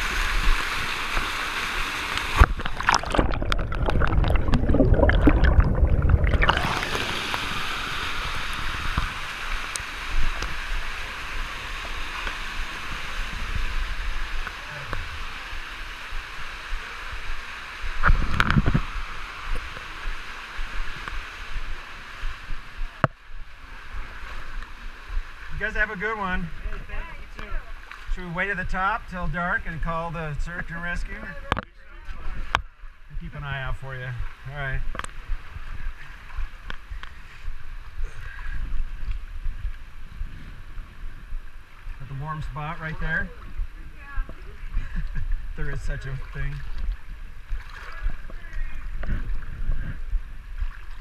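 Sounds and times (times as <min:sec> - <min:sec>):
water sloshing from wading: 0:00.0 - 0:15.7, 0:34.2 - 0:51.0
waterfall rushing: 0:00.0 - 0:18.0
rushing water: 0:00.0 - 0:51.0.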